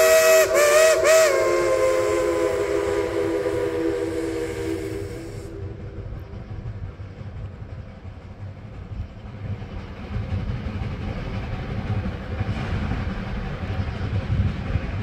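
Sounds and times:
steam whistle chord: 0:00.0 - 0:06.9
train rumbling: 0:00.0 - 0:15.0.

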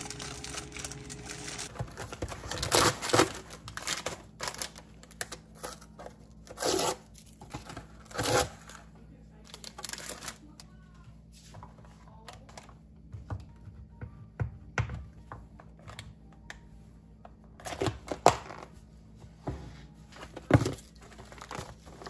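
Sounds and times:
packets crinkling: 0:00.0 - 0:08.8, 0:09.5 - 0:10.6.

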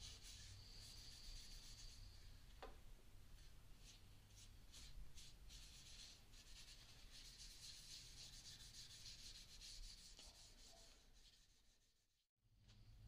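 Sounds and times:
paper towel rubbing wood: 0:00.0 - 0:02.1, 0:03.9 - 0:12.1.

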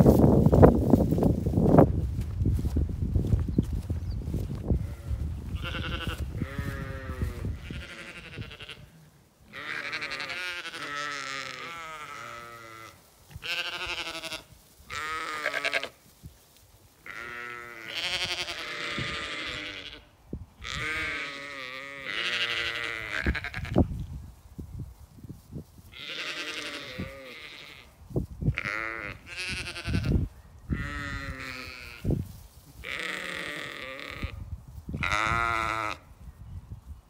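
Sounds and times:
sheep bleating: 0:04.8 - 0:16.0, 0:17.0 - 0:23.8, 0:25.9 - 0:27.9, 0:28.6 - 0:32.1, 0:32.8 - 0:34.4, 0:35.0 - 0:36.1.

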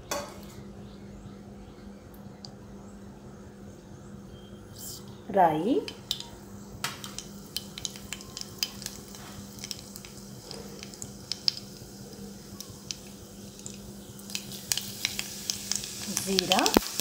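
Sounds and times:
faint oil sizzle: 0:05.6 - 0:17.0
seeds popping in hot oil: 0:05.8 - 0:17.0.

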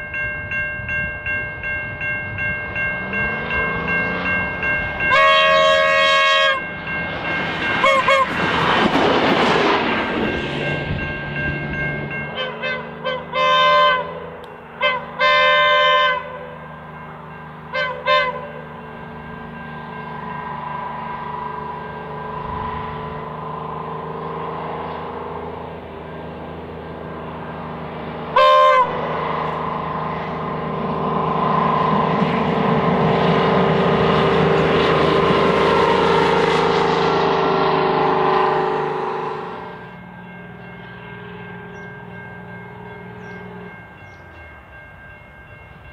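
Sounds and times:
diesel engine droning: 0:00.0 - 0:45.6
train horn toots: 0:05.0 - 0:06.7, 0:07.8 - 0:08.4, 0:12.4 - 0:16.6, 0:17.7 - 0:18.7, 0:28.3 - 0:29.1, 0:35.2 - 0:40.0.

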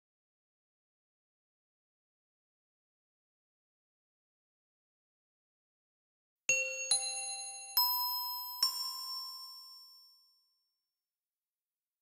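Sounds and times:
bell-like chime notes: 0:06.5 - 0:10.6.

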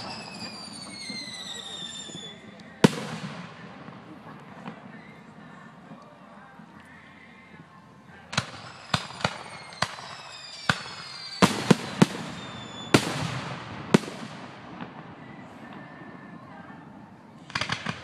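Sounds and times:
firework whistles falling in pitch: 0:00.0 - 0:02.5, 0:08.4 - 0:13.2
firework bangs: 0:00.0 - 0:05.4, 0:08.3 - 0:18.0.

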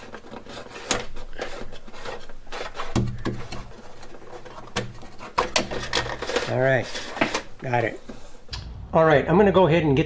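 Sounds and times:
wire rustling and scraping: 0:00.0 - 0:07.5.

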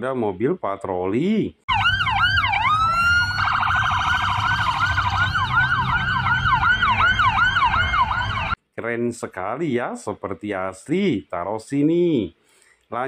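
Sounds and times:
police siren wailing and yelping: 0:01.7 - 0:08.6.

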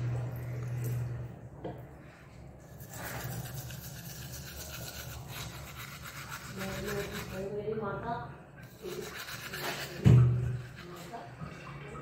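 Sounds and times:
toothbrush scrubbing teeth: 0:02.6 - 0:07.6, 0:08.6 - 0:11.8.

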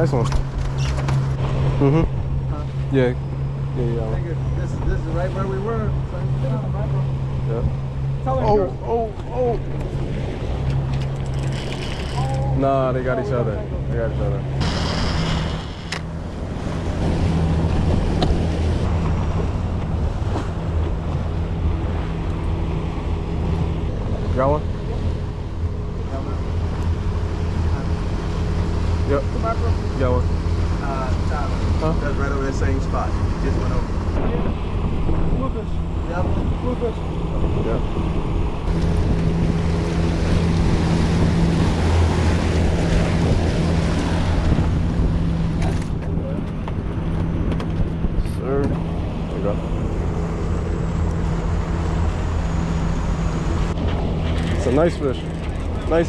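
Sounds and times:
boat wake rushing: 0:00.0 - 0:56.0
outboard motor humming: 0:00.0 - 0:56.0
water churning: 0:00.0 - 0:56.0
wind buffeting microphone: 0:13.6 - 0:56.0.

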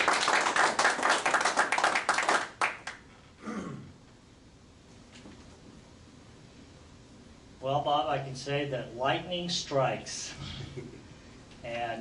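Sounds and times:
audience clapping: 0:00.0 - 0:03.1.

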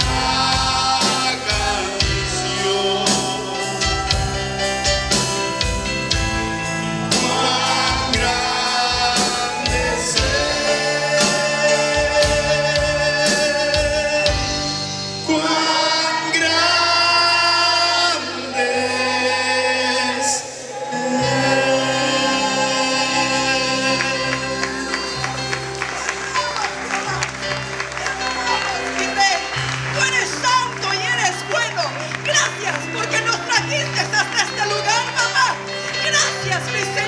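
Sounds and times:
people singing gospel: 0:00.0 - 0:05.4, 0:06.4 - 0:25.8
sustained keyboard chords: 0:00.0 - 0:19.9, 0:21.2 - 0:37.0.

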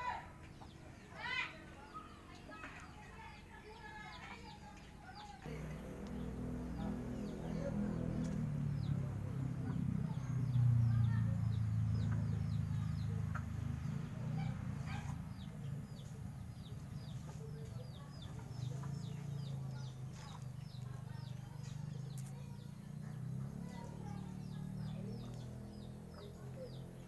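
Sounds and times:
steady low hum: 0:00.0 - 0:27.0
small bird chirping: 0:00.5 - 0:27.0
chickens clucking: 0:11.9 - 0:22.1.

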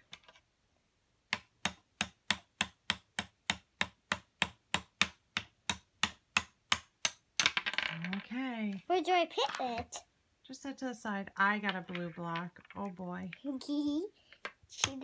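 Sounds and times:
toy hammer tapping plastic: 0:01.3 - 0:07.5.

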